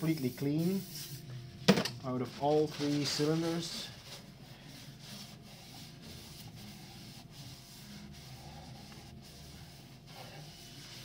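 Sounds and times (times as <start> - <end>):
paper towel scrubbing metal: 2.4 - 11.0.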